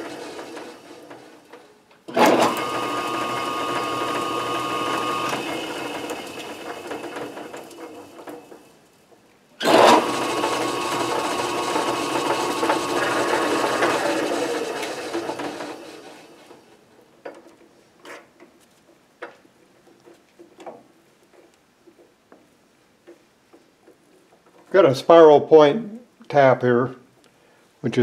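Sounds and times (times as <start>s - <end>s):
metal lathe running: 0.0s - 1.2s, 2.1s - 8.3s, 9.6s - 16.5s.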